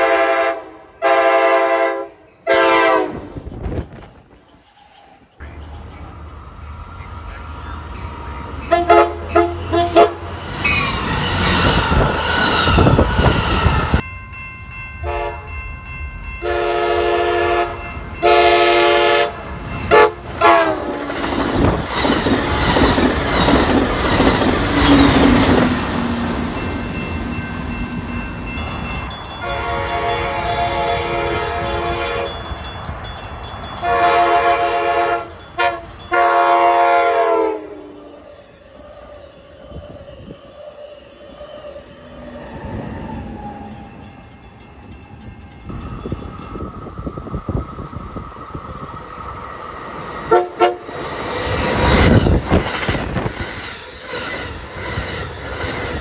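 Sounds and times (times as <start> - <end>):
train horn blasts: 0.0 - 3.5, 8.6 - 10.4, 15.0 - 15.6, 16.4 - 21.1, 29.4 - 32.4, 33.8 - 38.2, 50.3 - 51.0
passing train rumble and clatter: 0.0 - 56.0.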